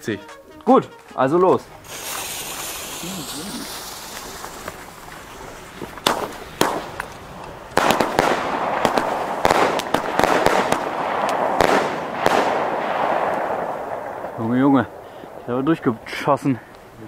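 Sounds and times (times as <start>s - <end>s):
firework shots and bursts: 1.8s - 4.8s, 6.0s - 15.4s.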